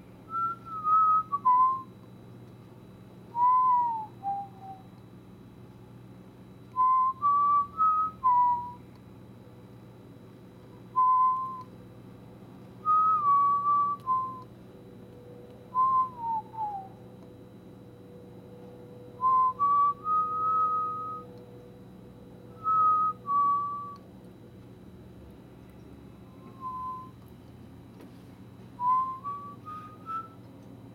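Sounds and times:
faint steady hum: 0.0s - 30.9s
person whistling a slow tune: 0.3s - 2.0s, 3.3s - 5.0s, 6.7s - 8.9s, 10.9s - 11.8s, 12.8s - 14.5s, 15.7s - 17.0s, 19.2s - 21.4s, 22.5s - 24.0s, 26.2s - 27.2s, 28.8s - 30.5s.

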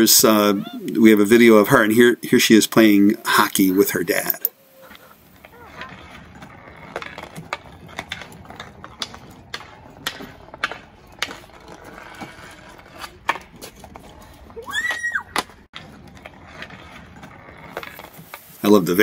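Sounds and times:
hockey sticks clacking on asphalt: 2.6s - 19.0s.

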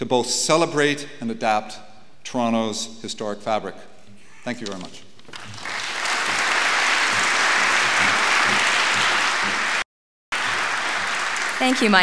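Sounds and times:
large audience applauding: 5.3s - 12.0s.

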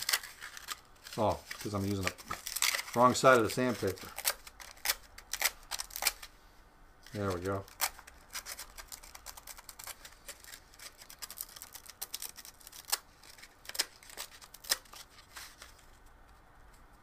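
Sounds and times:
sandpaper scratching plastic: 7.2s - 15.6s.

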